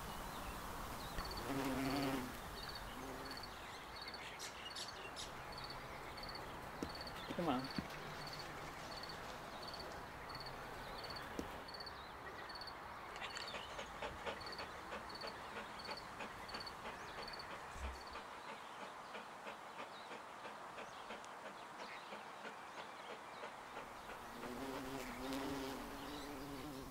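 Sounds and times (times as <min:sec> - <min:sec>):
insects chirping: 0:01.1 - 0:13.5, 0:14.4 - 0:18.2.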